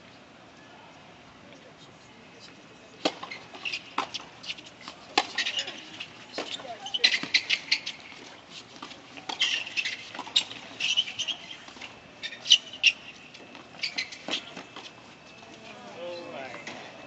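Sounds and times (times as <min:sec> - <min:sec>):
tennis shoes squeaking: 0:01.8 - 0:17.0
racket hitting ball: 0:03.0 - 0:04.3.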